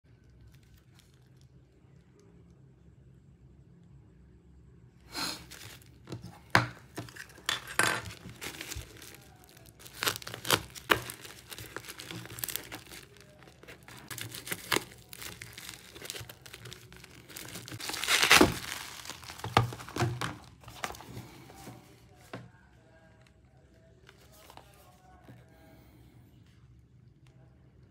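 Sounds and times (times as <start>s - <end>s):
plastic wrap tearing and crinkling: 0.2s - 1.5s, 5.3s - 21.4s.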